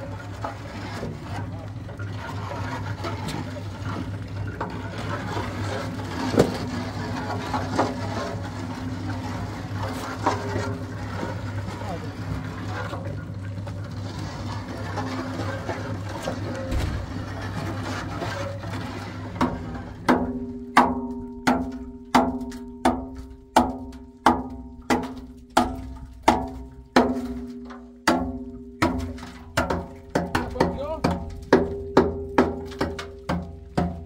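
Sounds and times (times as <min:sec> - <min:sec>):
hammer striking steel drum: 0:19.4 - 0:34.0.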